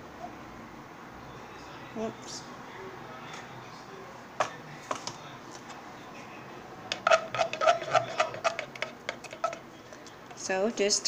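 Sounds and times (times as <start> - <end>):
plastic dropper squeaking: 6.9 - 9.6.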